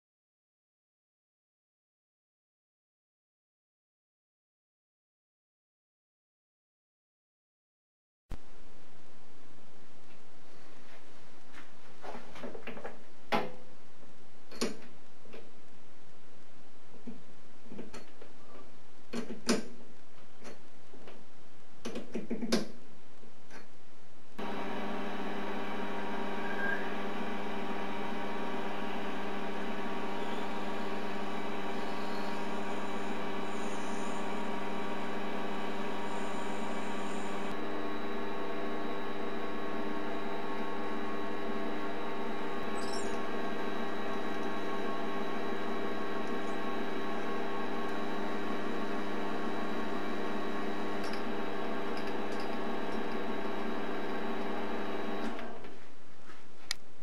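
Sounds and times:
lathe motor whine: 0:24.4 - 0:55.6.

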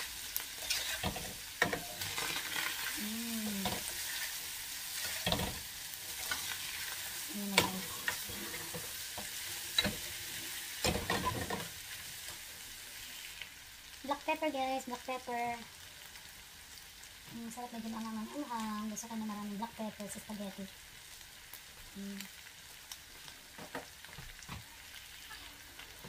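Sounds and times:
meat and onions sizzling: 0:00.0 - 0:26.0
spatula scraping pan: 0:00.6 - 0:11.7.

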